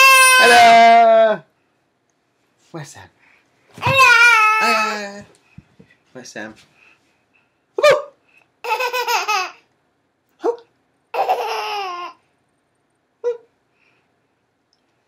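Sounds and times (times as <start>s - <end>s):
baby laughing and squealing: 3.8s - 5.1s, 8.6s - 9.6s, 11.2s - 12.2s.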